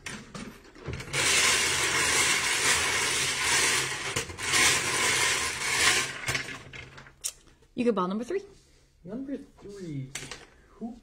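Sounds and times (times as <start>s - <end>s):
bingo balls clattering in cage: 0.0s - 7.2s.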